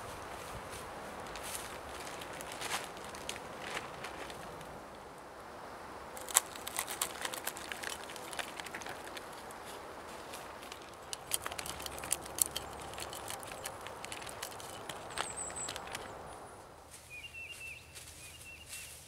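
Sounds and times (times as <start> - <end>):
plastic bag crinkling: 1.2 - 4.6, 6.2 - 16.2.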